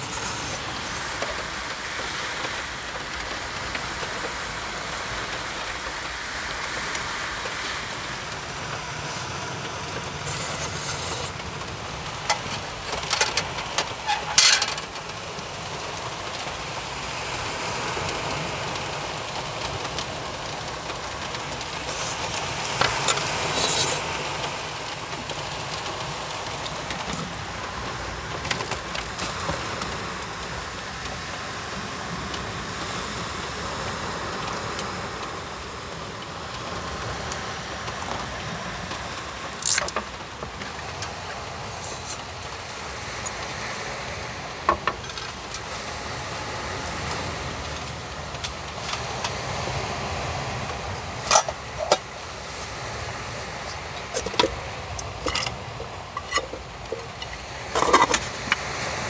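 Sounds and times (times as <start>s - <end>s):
steady rain: 0.0s - 59.0s
metallic clinks of camping pot: 12.3s - 14.9s, 39.6s - 40.1s, 51.2s - 52.1s, 53.6s - 58.6s.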